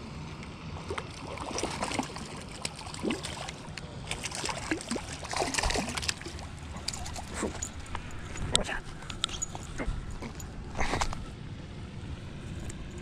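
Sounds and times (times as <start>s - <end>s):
fish splashing at water surface: 0.8s - 8.2s.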